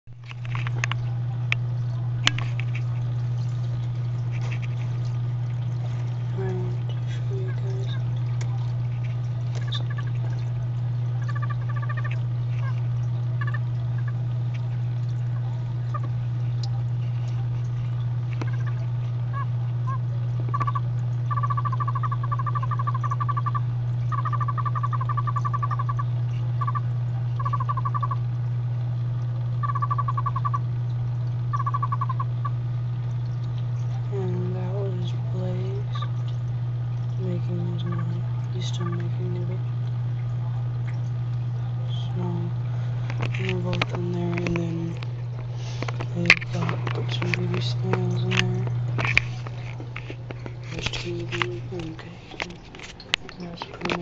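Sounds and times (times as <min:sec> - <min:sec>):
steady low hum: 0:00.1 - 0:54.0
toad calling: 0:09.5 - 0:10.5, 0:11.2 - 0:14.2, 0:15.3 - 0:16.2, 0:18.4 - 0:28.3, 0:29.6 - 0:30.7, 0:31.5 - 0:32.6, 0:35.3 - 0:36.2, 0:37.6 - 0:39.6.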